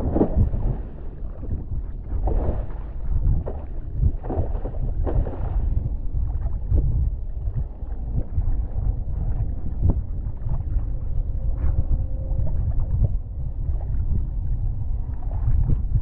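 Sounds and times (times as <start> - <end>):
water splashes: 0.0 - 11.0
faint steady hum: 0.0 - 16.0
wind buffeting microphone: 0.0 - 16.0.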